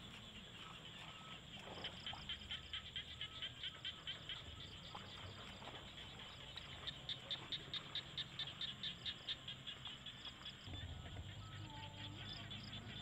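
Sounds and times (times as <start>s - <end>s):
frogs chirping: 0.0s - 13.0s
faint steady high tone: 10.7s - 13.0s.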